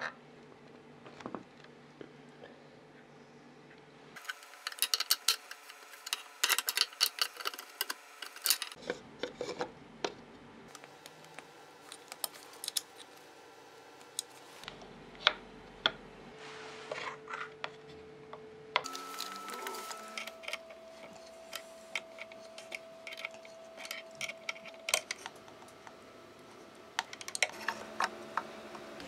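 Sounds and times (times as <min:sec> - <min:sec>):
metal parts clicking and scraping: 0:04.2 - 0:09.6, 0:10.7 - 0:13.2, 0:18.8 - 0:25.8.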